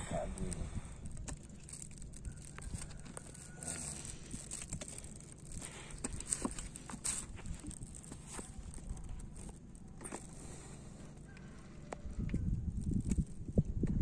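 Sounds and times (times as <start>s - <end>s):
steady low rumble: 0.0s - 14.0s
hands handling fishing gear: 1.1s - 12.0s.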